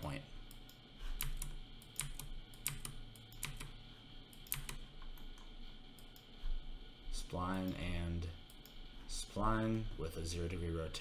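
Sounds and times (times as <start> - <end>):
keyboard and mouse clicks: 0.5 - 3.8, 4.4 - 6.3.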